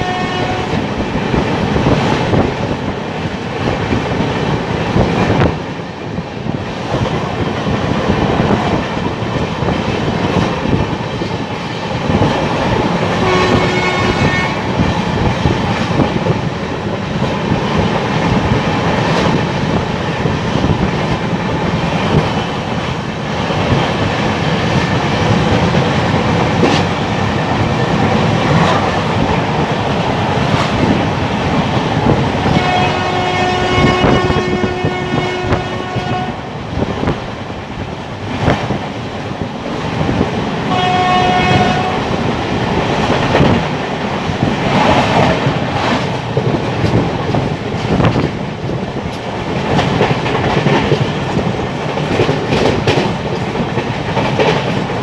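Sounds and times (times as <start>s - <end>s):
train horn blasts: 0.0s - 0.9s, 13.2s - 14.7s, 32.4s - 36.6s, 40.7s - 42.2s
train rumbling on rails: 0.0s - 55.0s
wheels clacking over rail joints: 14.7s - 33.3s, 41.7s - 55.0s.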